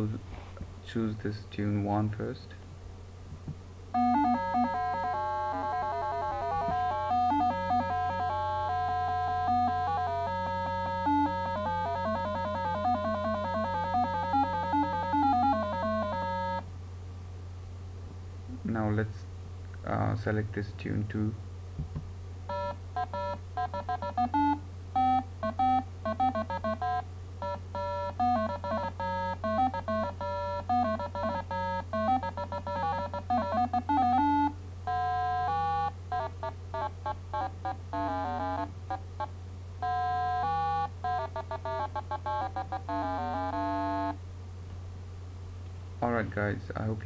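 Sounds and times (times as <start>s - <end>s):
steady low hum: 0.0s - 47.0s
electronic doorbell beeping tune: 4.0s - 16.6s, 22.5s - 38.7s, 39.8s - 44.2s.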